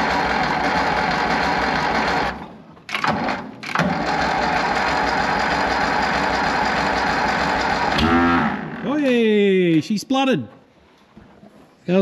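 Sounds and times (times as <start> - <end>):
engine cranking on starter motor: 0.0 - 8.9.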